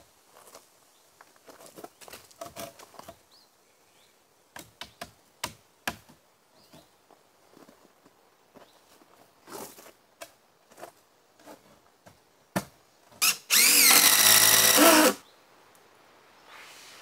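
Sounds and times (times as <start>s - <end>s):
gravel crunching under knees: 7.1s - 10.0s.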